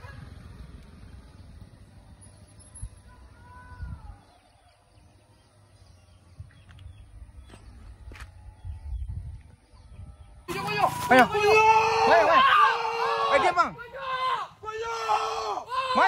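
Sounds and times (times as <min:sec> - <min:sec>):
vehicle engine: 0:00.0 - 0:11.7.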